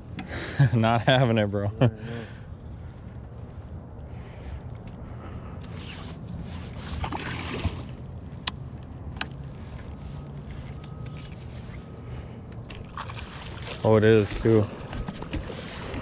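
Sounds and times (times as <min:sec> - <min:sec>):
steady low rumble: 0:00.0 - 0:06.8
water splashing from thrashing fish: 0:07.0 - 0:08.0, 0:12.7 - 0:14.9.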